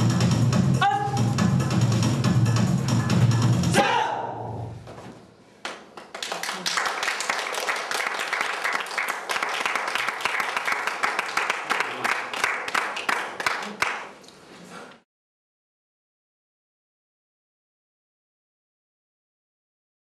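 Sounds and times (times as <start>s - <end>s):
music: 0.0s - 3.8s
audience applauding: 5.9s - 14.2s.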